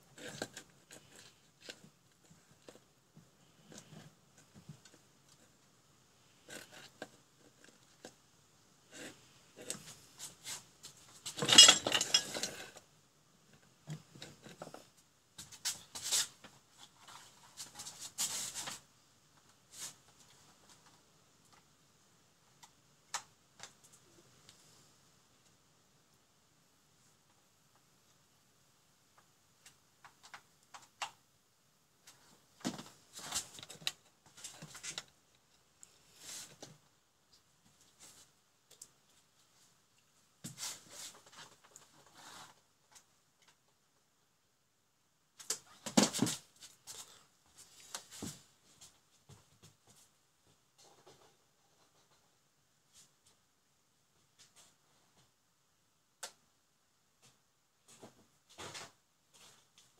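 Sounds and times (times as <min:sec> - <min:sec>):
wires scraping and rustling: 0:00.0 - 0:08.2, 0:08.8 - 0:21.7, 0:32.0 - 0:43.7
clicks and knocks of parts: 0:11.2 - 0:12.8
hard objects clattering on workbench: 0:11.2 - 0:12.9.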